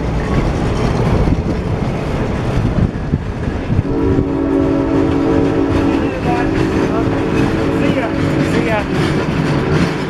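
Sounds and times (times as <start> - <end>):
train wheels clattering on rails: 0.0 - 10.0
locomotive air horn chord: 3.8 - 8.8.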